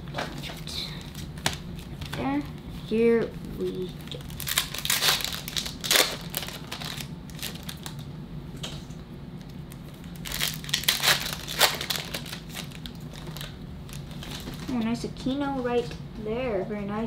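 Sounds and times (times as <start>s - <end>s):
foil wrappers crinkling and tearing: 3.6s - 8.1s, 9.7s - 14.9s.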